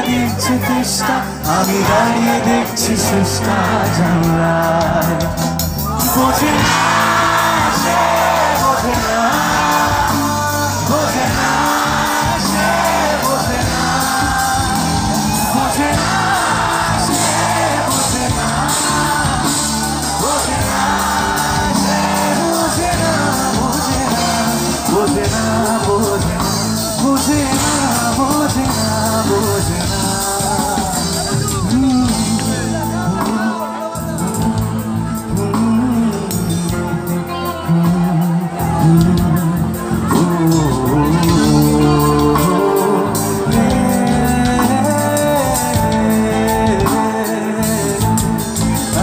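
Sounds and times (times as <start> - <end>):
drums: 0.0 - 49.0
electric guitars: 0.0 - 49.0
keyboards: 0.0 - 49.0
man singing into a microphone: 0.0 - 49.0
crowd shouting: 5.8 - 31.8.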